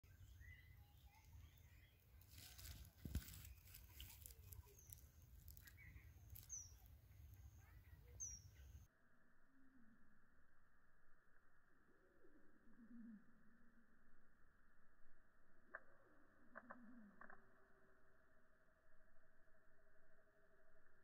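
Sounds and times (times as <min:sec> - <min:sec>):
high falling bird chirps: 0:00.0 - 0:08.9.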